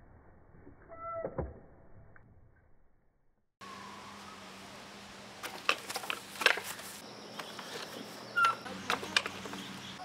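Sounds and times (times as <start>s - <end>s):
birds chirping: 6.6s - 10.0s.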